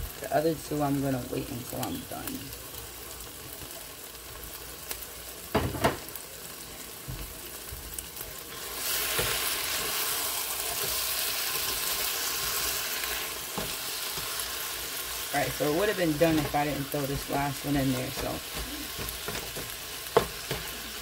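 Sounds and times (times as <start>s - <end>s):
burger patties and onions sizzling: 0.0s - 21.0s
spatula stirring in pan: 7.6s - 21.0s.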